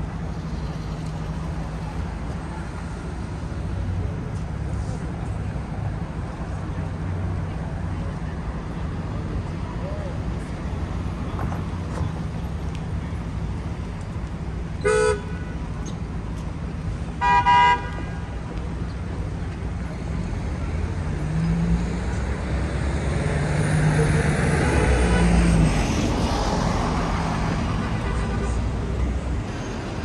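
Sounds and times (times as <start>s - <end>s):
traffic rumble: 0.0s - 30.0s
vehicle horn honks: 14.8s - 15.6s, 17.2s - 18.0s.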